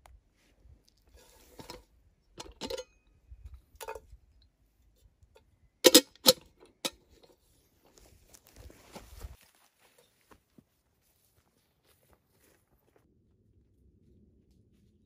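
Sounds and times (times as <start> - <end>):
metal kettle lid clinking: 2.4 - 2.9, 5.9 - 7.0.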